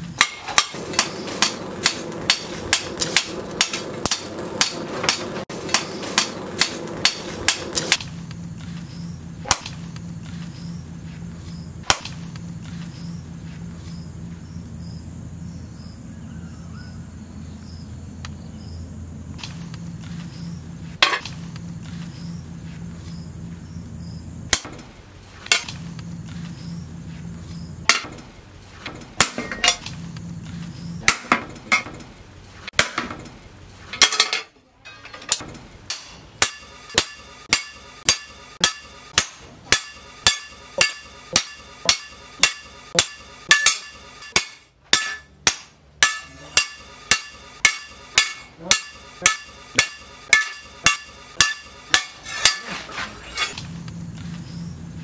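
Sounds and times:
low hum: 0:00.0 - 0:33.9, 0:35.4 - 0:55.0
hammer striking steel on anvil: 0:00.2 - 0:08.1, 0:24.5 - 0:24.9, 0:25.5 - 0:25.8, 0:27.9 - 0:28.2, 0:28.9 - 0:29.8, 0:31.0 - 0:32.0, 0:32.8 - 0:33.3, 0:34.0 - 0:53.6.

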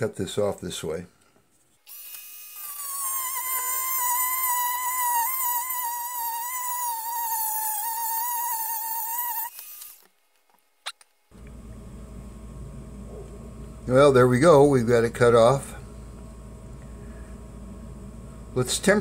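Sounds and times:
rotary tool cutting metal: 0:01.9 - 0:10.0.

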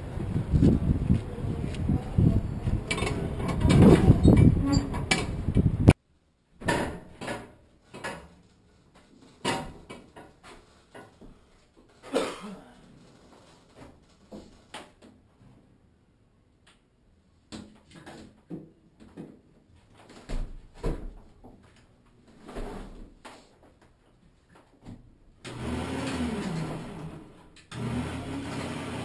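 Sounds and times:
wind buffeting microphone: 0:00.0 - 0:06.0.

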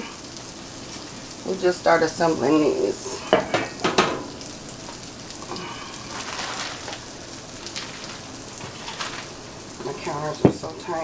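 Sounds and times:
sausages sizzling in frying pan: 0:00.0 - 0:11.0
dishes clattering: 0:03.2 - 0:04.4, 0:07.8 - 0:10.7.

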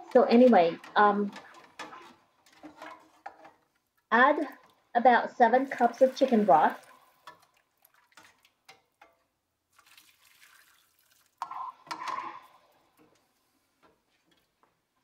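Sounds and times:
liquid splashing: 0:05.6 - 0:08.7, 0:09.7 - 0:11.4.

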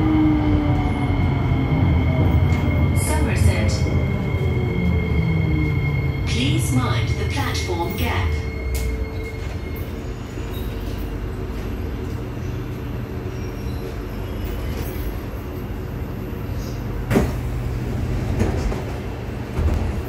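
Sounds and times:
train cabin hum: 0:00.0 - 0:20.0
train doors opening clunk: 0:16.6 - 0:20.0.

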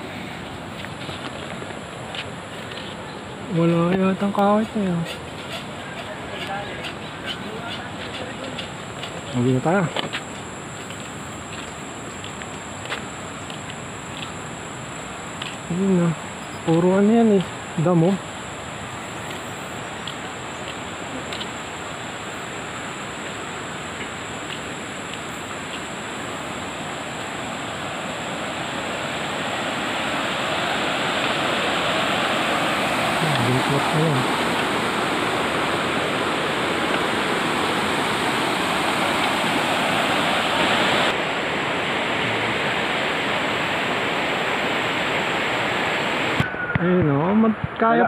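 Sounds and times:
river rushing over rocks: 0:16.3 - 0:46.5.

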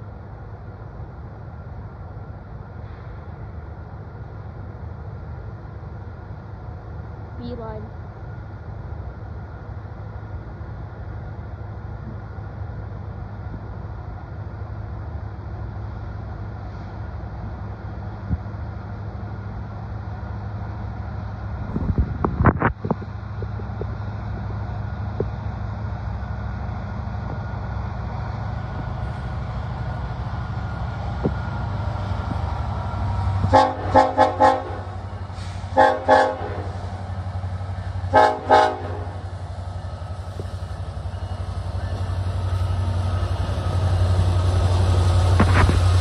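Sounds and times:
diesel locomotive engine rumble: 0:00.0 - 0:46.0
train air horn short blasts: 0:33.5 - 0:34.8, 0:35.4 - 0:36.7, 0:38.1 - 0:39.1.

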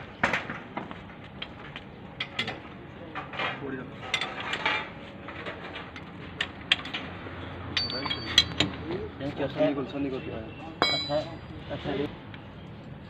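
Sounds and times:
spanners clinking on bolts: 0:02.2 - 0:02.6, 0:03.2 - 0:08.9, 0:10.8 - 0:11.4.

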